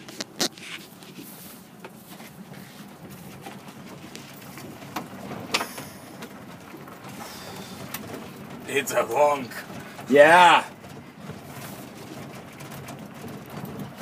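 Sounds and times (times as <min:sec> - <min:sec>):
coach engine rumble: 0:00.0 - 0:14.0
knocks and rattles: 0:02.4 - 0:14.0.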